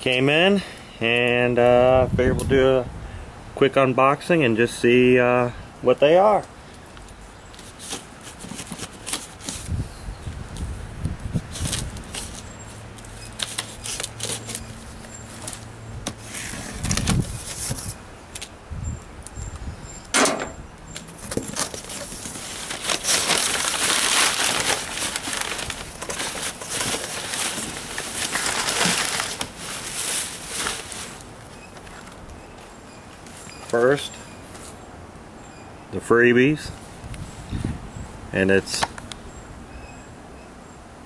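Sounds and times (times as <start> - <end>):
packing paper rustling and crackling: 7.5 - 9.9, 11.4 - 18.5, 21.0 - 34.8
packing tape being slit: 13.3 - 14.7, 21.0 - 31.3.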